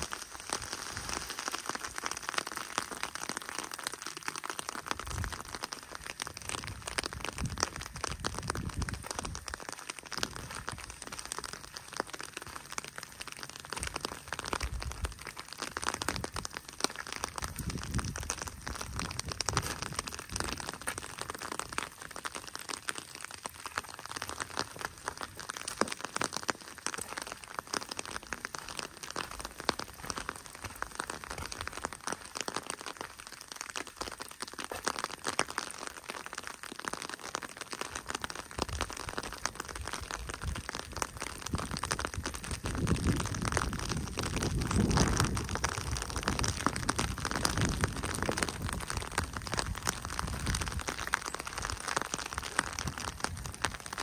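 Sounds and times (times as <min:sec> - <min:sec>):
footsteps crunching on gravel: 0:18.9 - 0:21.4, 0:24.6 - 0:32.5.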